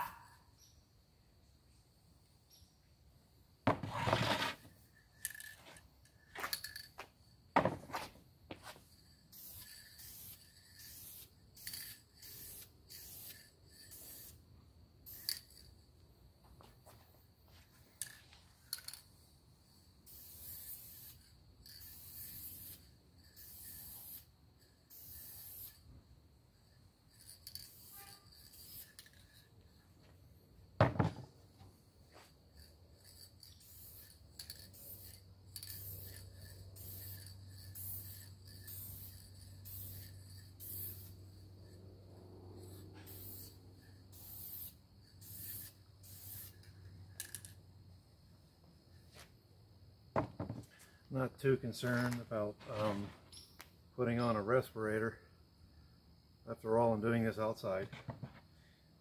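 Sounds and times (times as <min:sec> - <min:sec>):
aerosol spray can hissing: 0:09.3 - 0:14.4, 0:20.1 - 0:24.3, 0:24.9 - 0:25.8, 0:33.1 - 0:41.2, 0:43.0 - 0:46.7.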